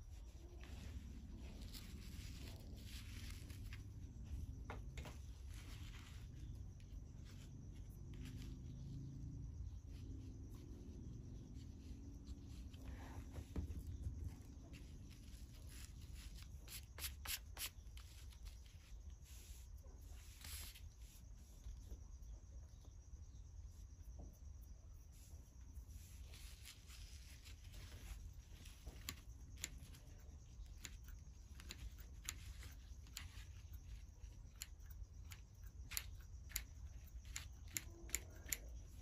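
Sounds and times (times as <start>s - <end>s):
twine rubbing on paper: 0.0s - 4.5s, 11.6s - 21.4s
sharp clicks: 30.7s - 39.0s.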